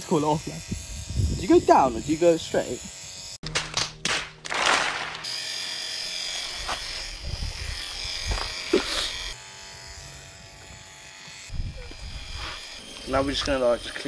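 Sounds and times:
electric hair clippers buzzing: 0.0s - 3.4s, 5.0s - 14.0s.

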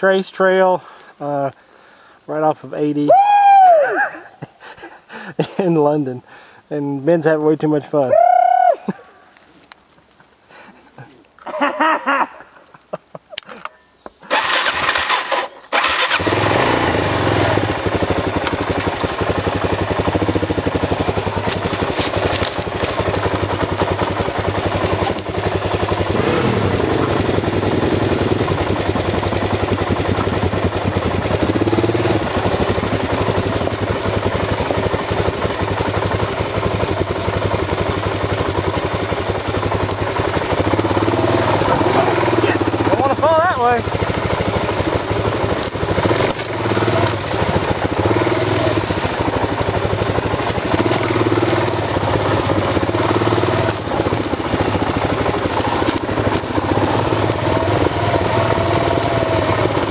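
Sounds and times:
dirt bike engine: 13.6s - 59.9s.

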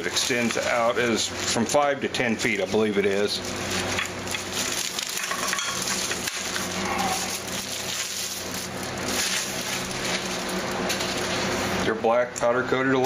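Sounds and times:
plastic wrapping crinkling: 0.0s - 11.8s
steady low hum: 0.0s - 13.0s.

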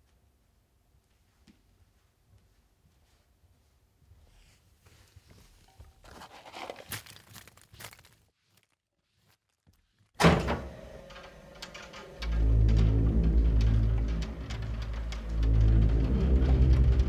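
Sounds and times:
footsteps crunching popcorn: 5.2s - 10.2s.

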